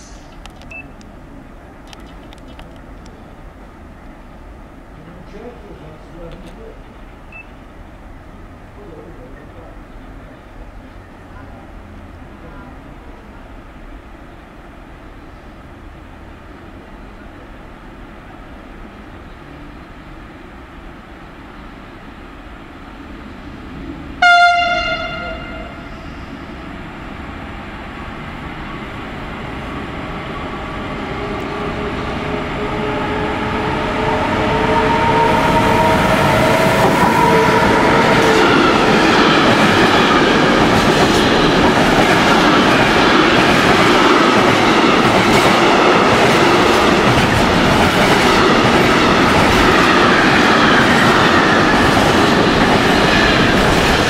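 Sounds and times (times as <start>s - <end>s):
locomotive horn blast: 24.2s - 26.0s.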